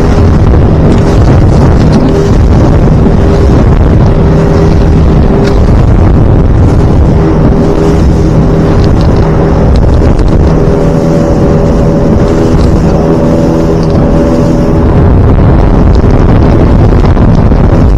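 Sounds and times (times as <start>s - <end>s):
boat motor running: 0.0s - 17.9s
wind buffeting microphone: 0.0s - 17.9s.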